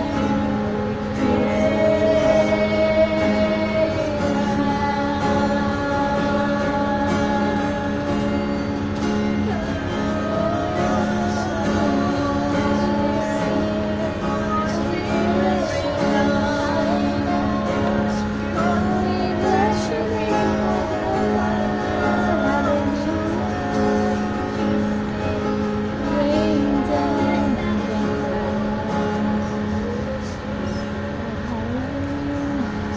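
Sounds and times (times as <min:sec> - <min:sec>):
acoustic guitar: 0:00.0 - 0:32.9
women singing a worship song: 0:00.0 - 0:32.9.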